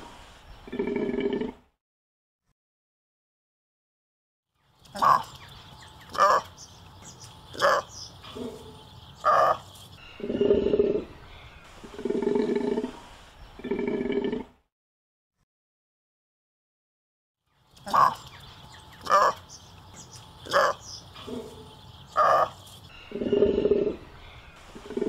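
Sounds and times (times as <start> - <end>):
animal calling: 4.9 - 13.0, 17.8 - 25.0.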